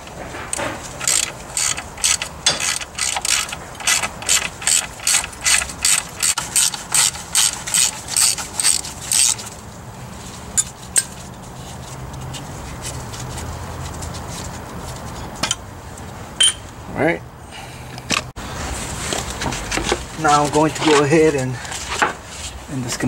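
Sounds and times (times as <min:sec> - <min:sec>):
socket ratchet ratcheting: 0:01.0 - 0:09.4.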